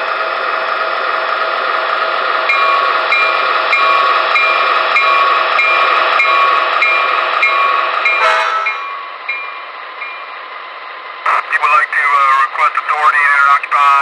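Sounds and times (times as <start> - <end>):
model locomotive diesel engine sound: 0.0 - 14.0
locomotive bell ringing: 2.5 - 10.4.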